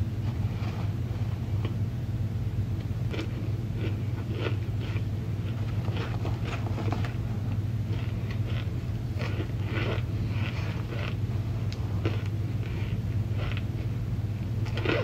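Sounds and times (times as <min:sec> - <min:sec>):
steady low hum: 0:00.0 - 0:15.0
cornstarch crunching: 0:07.9 - 0:11.2.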